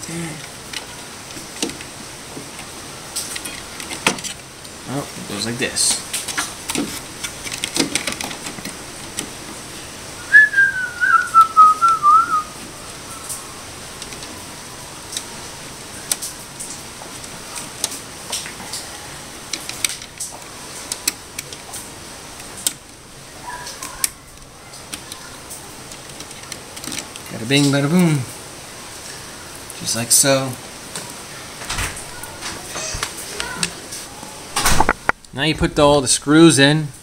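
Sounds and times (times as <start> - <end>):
person whistling: 10.2 - 12.5.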